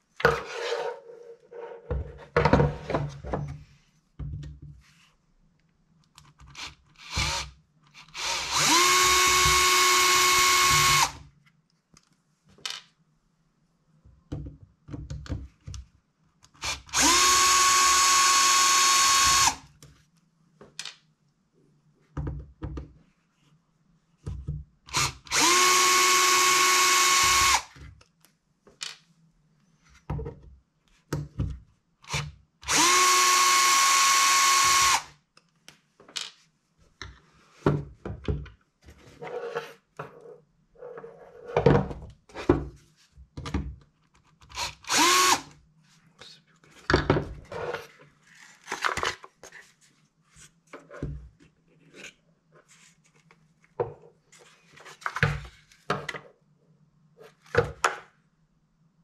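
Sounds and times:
electric screwdriver whine: 0:06.6 - 0:11.2, 0:16.6 - 0:19.6, 0:24.9 - 0:27.7, 0:32.1 - 0:35.1, 0:44.6 - 0:45.5.

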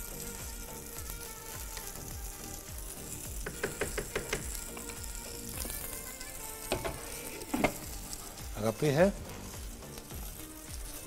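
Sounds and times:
background music with beat: 0:00.0 - 0:11.0
food sizzling in a pan: 0:00.0 - 0:11.0.

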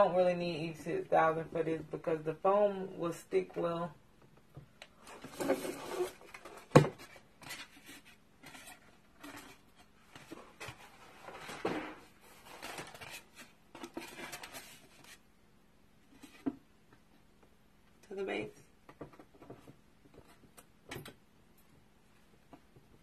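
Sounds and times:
scraping and rustling of box: 0:05.0 - 0:15.2.

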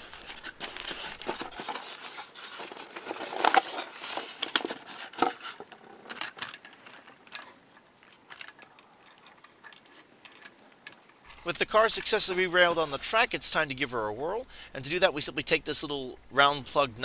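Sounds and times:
styrofoam rubbing and scraping: 0:00.0 - 0:05.8.

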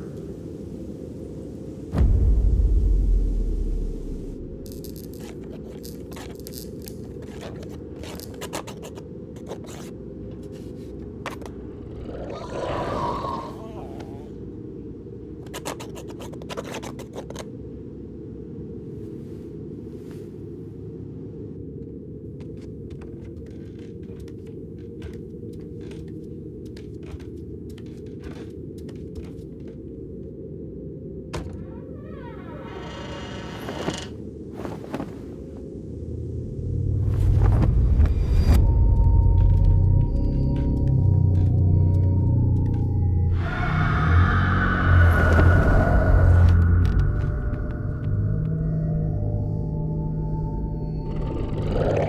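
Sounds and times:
low steady rumble: 0:00.0 - 0:07.6, 0:34.1 - 0:43.4
steady low rumble: 0:00.0 - 0:08.4, 0:13.0 - 0:15.5, 0:17.4 - 0:32.1, 0:34.1 - 0:52.0
small creature footsteps: 0:22.3 - 0:30.2.

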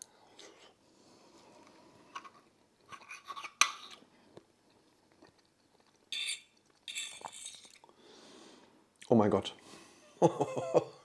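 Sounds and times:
fork clinking on a plate: 0:06.1 - 0:07.6.

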